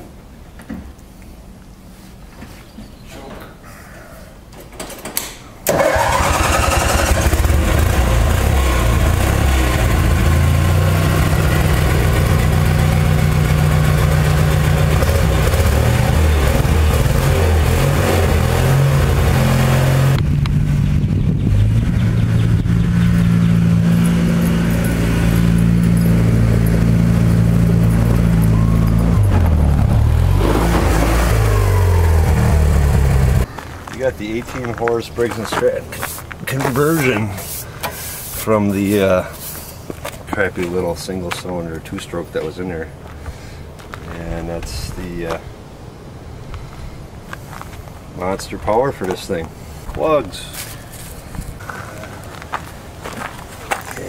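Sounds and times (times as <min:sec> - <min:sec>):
small engine revving: 0:05.7 - 0:33.5.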